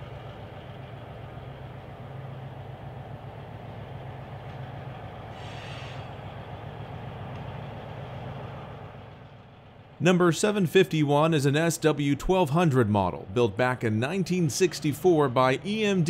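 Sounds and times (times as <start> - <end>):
diesel locomotive engine drone: 0.0 - 16.0
brief hiss: 5.3 - 6.2.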